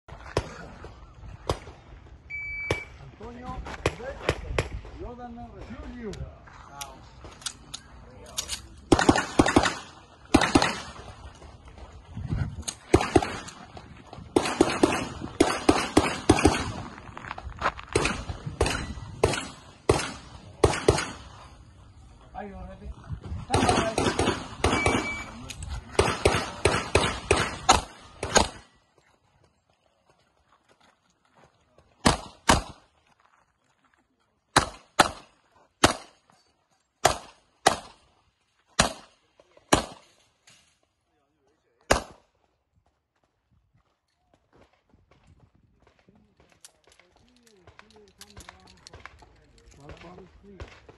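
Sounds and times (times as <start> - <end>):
pistol shots with echo: 8.9 - 11.1, 12.9 - 13.7, 14.3 - 16.9, 18.0 - 21.4, 23.5 - 28.7, 32.0 - 32.8, 34.5 - 36.2, 37.0 - 38.0, 38.8 - 40.1, 41.9 - 42.2.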